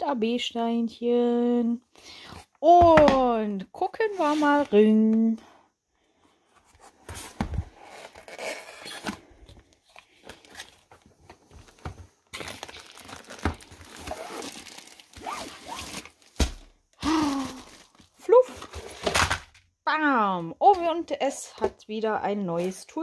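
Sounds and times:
packaging rustling and tearing: 0:07.5 - 0:19.5.

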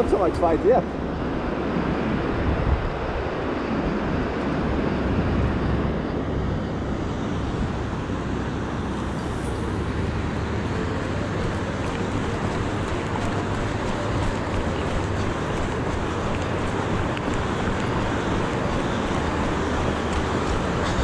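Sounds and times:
wind: 0:00.0 - 0:21.0.

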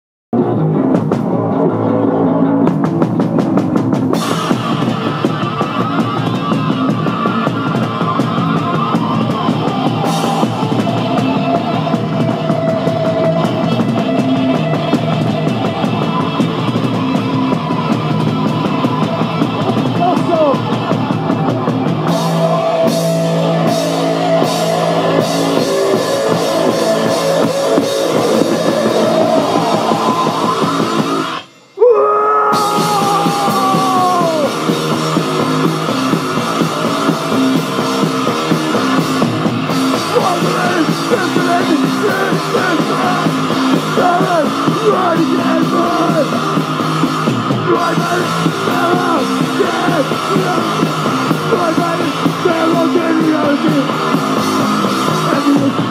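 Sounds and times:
live punk band playing: 0:00.4 - 0:55.9
long falling tone: 0:20.9 - 0:42.0.

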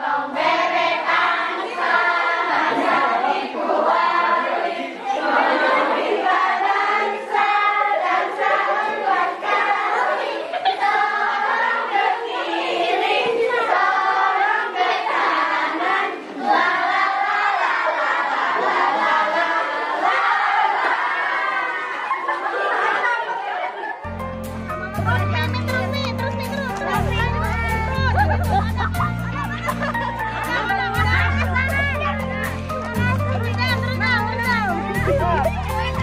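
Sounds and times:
women and children singing: 0:00.0 - 0:22.0.

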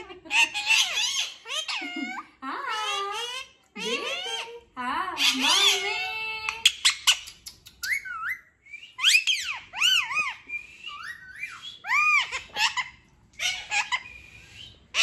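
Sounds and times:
parakeet squawks: 0:00.3 - 0:03.6, 0:11.0 - 0:14.1
parakeet whistles: 0:07.8 - 0:12.8.

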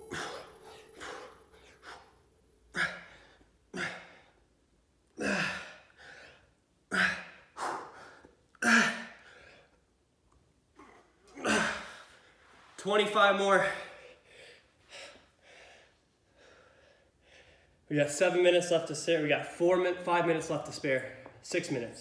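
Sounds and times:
man breathing hard: 0:00.0 - 0:04.5, 0:05.2 - 0:08.4, 0:13.7 - 0:17.9.

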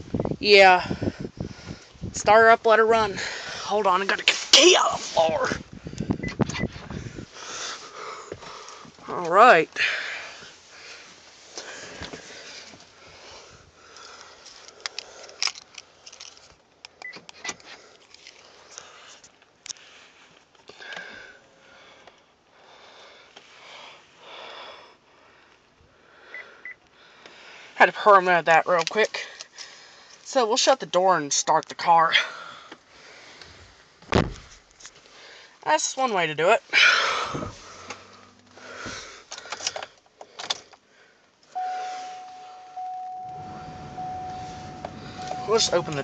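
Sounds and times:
breathing and sniffing: 0:05.8 - 0:09.0, 0:09.8 - 0:15.4, 0:36.8 - 0:41.2
dashboard warning chime: 0:41.6 - 0:46.0
short high beeps: 0:41.6 - 0:46.0.

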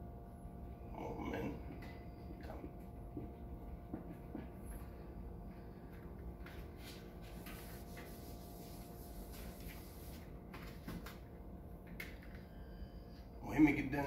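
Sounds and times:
low room hum: 0:00.0 - 0:14.0
eraser rubbing on whiteboard: 0:06.8 - 0:10.3.

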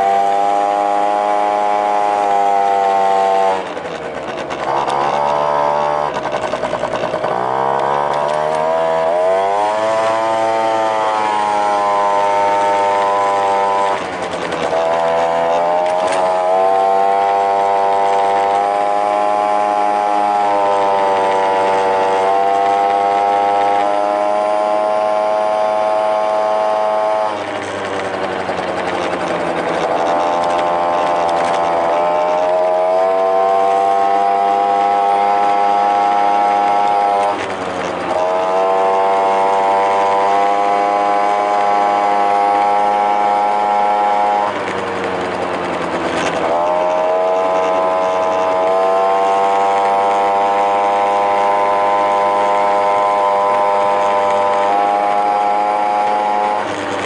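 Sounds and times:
scooter engine running: 0:00.0 - 0:57.0.

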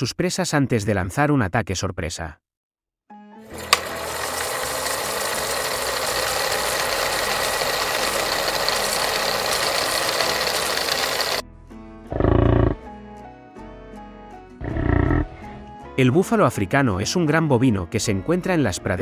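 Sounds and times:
steady rattling: 0:03.6 - 0:11.4.

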